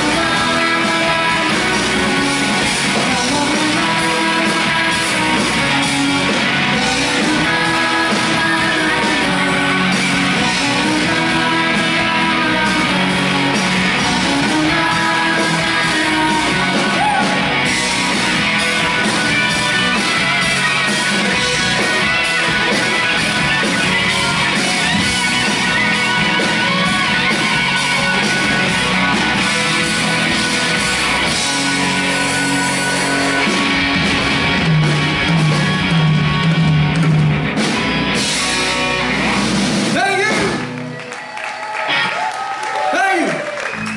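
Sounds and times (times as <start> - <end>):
person singing: 0.0 - 18.2
keyboard: 0.0 - 41.2
bass guitar: 0.0 - 43.9
drums: 0.0 - 43.9
electric guitars: 0.0 - 43.9.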